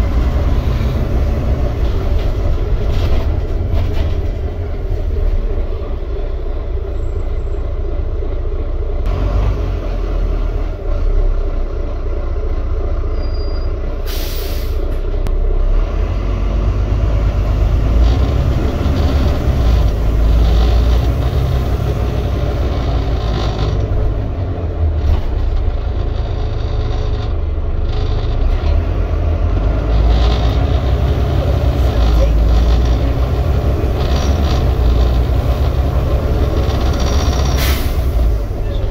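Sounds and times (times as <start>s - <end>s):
bus diesel engine rumbling: 0.0s - 38.9s
road noise: 0.0s - 38.9s
compressed air hiss: 14.1s - 14.8s, 37.6s - 38.1s.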